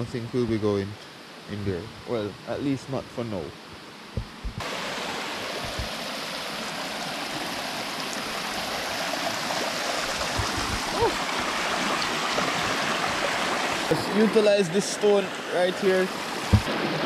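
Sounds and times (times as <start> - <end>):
river rushing over rocks: 4.6 - 17.0.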